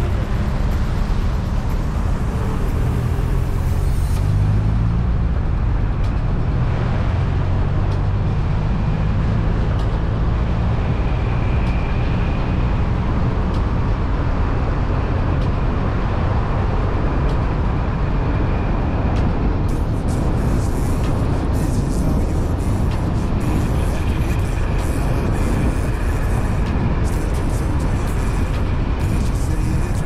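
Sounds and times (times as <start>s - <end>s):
road vehicle rumble: 0.0s - 30.0s.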